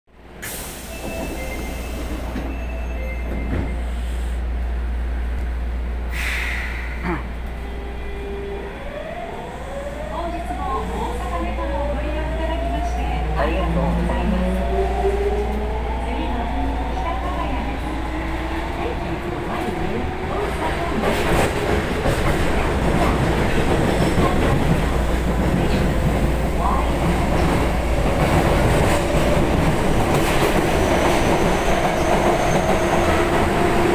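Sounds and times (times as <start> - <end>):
subway car low rumble: 0.1 - 33.9
burst of hiss: 6.1 - 7.0.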